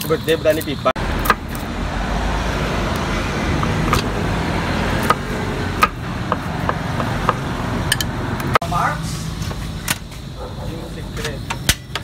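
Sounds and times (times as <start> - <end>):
knife chopping on wooden board: 4.9 - 8.1.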